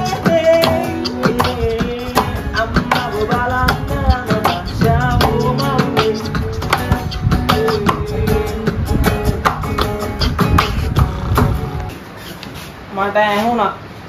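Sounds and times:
man singing: 0:00.0 - 0:10.6
acoustic guitar strumming: 0:00.0 - 0:12.0.

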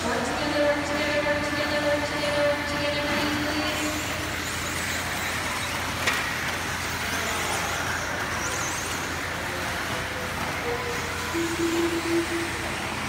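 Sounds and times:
steady droning tone: 0:00.0 - 0:13.0
high electric motor whines: 0:03.1 - 0:13.0.

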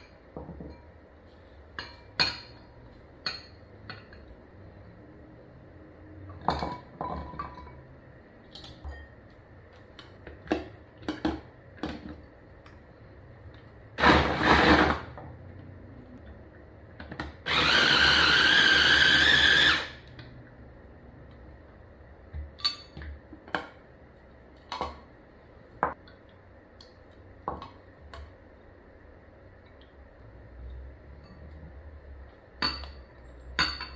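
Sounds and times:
glass bowls clinking: 0:01.8 - 0:04.3, 0:06.3 - 0:07.9, 0:08.8 - 0:09.2, 0:22.6 - 0:23.1, 0:31.2 - 0:31.6, 0:32.6 - 0:33.9
food chopper motor whine: 0:14.0 - 0:15.1, 0:17.4 - 0:20.1.

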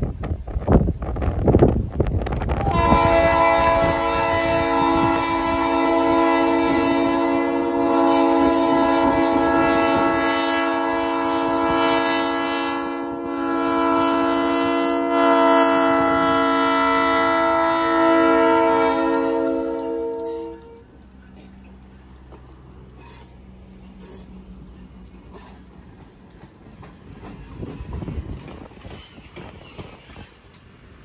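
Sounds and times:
locomotive air horn chord: 0:02.6 - 0:21.0.

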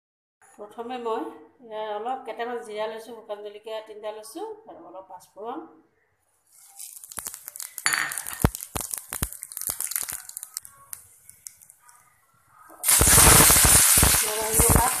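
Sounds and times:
food sizzling in oil: 0:06.5 - 0:11.8, 0:12.8 - 0:15.0
spices popping in hot oil: 0:06.5 - 0:12.1, 0:12.8 - 0:15.0.

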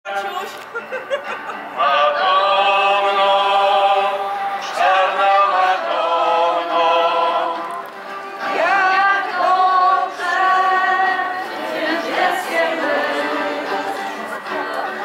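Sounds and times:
group singing unaccompanied: 0:01.6 - 0:07.8, 0:08.4 - 0:15.0.

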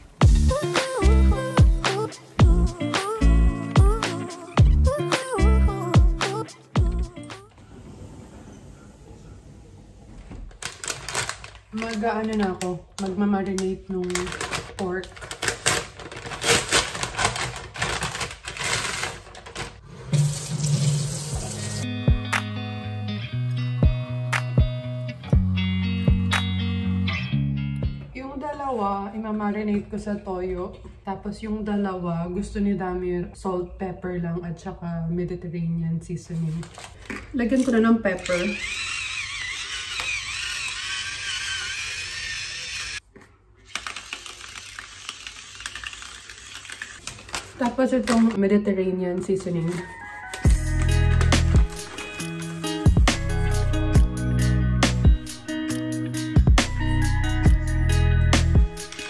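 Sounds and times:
guitar music: 0:00.2 - 0:07.4, 0:21.4 - 0:28.2, 0:50.4 - 0:59.0
paper wrapping crinkling: 0:10.4 - 0:19.8, 0:36.4 - 0:37.4, 0:43.1 - 0:48.4, 0:49.4 - 0:52.4
electric pepper mill grinding: 0:14.0 - 0:19.6, 0:38.1 - 0:43.0, 0:43.6 - 0:47.4, 0:50.3 - 0:54.1, 0:58.7 - 0:59.0
salt mill crackling clicks: 0:43.7 - 0:47.4.

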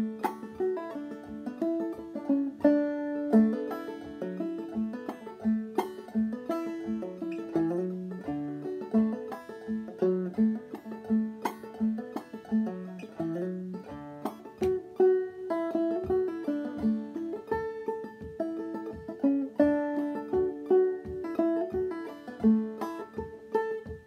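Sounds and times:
banjo played clawhammer style: 0:00.0 - 0:24.0.

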